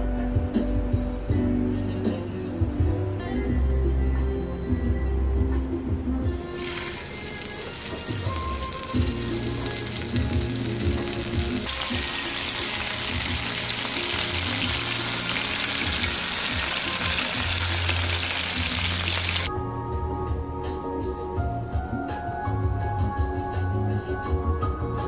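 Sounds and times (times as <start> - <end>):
background music: 0.0 - 25.0
chicken sizzling in hot oil: 6.3 - 19.5.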